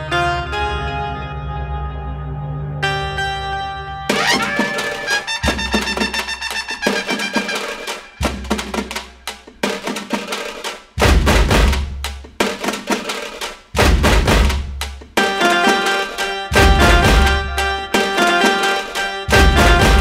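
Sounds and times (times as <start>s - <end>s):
background music with drum beat: 4.1s - 20.0s
heavy bass hits: 11.0s - 12.1s, 13.8s - 14.9s, 16.6s - 17.8s, 19.3s - 20.0s.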